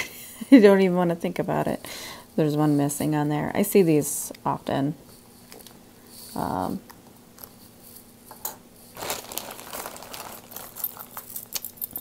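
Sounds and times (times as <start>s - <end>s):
plastic bag crinkling: 9.0s - 12.0s
metal jewelry clicking together: 10.5s - 12.0s.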